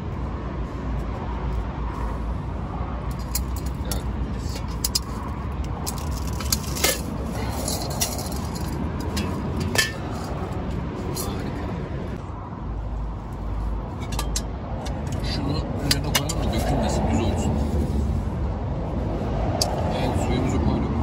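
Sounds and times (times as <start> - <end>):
metal cookware clinking and knocking: 8.0 - 10.2, 14.0 - 14.5.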